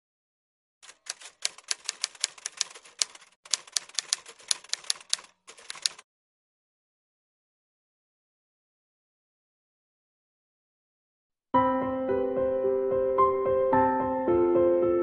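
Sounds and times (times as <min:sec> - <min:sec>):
typewriter keys clacking: 0:00.8 - 0:06.0.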